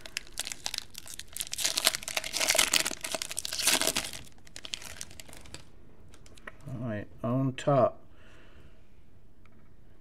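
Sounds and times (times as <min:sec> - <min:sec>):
foil wrapper tearing and crinkling: 0:00.0 - 0:06.3.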